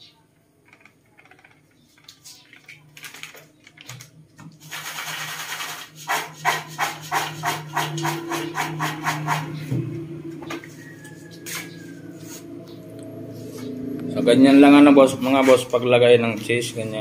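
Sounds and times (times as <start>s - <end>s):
popcorn rattling in metal pot: 4.6s - 9.3s.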